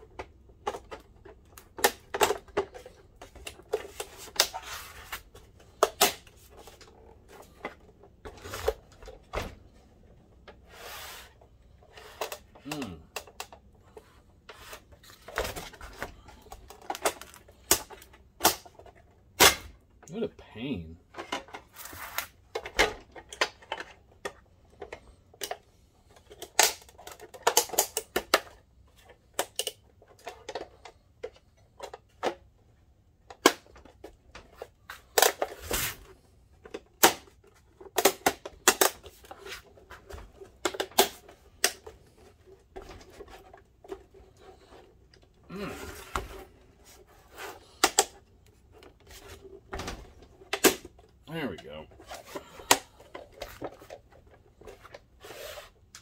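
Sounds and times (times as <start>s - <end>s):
brief scraping rub: 10.7s - 11.3s.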